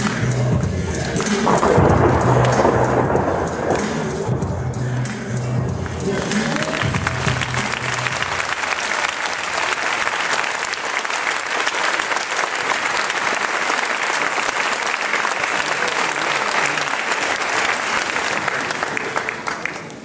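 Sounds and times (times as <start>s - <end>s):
dance music: 0.0s - 8.7s
audience applauding: 5.7s - 20.0s.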